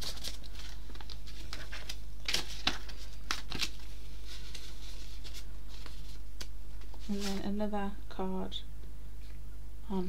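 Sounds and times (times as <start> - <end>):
paper crinkles: 0.0 - 7.4
paper and card rustling: 0.0 - 7.7.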